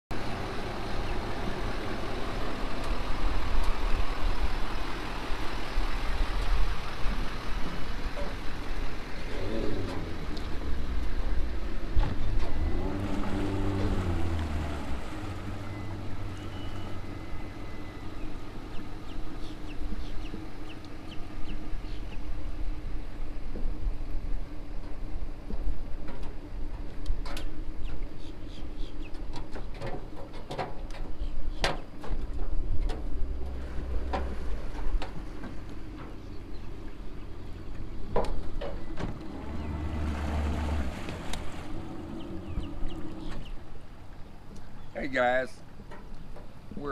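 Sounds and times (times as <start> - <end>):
steady low rumble: 0.1 - 29.7, 30.8 - 46.9
outboard motor idling: 0.1 - 46.9
pickup truck engine: 0.1 - 46.9.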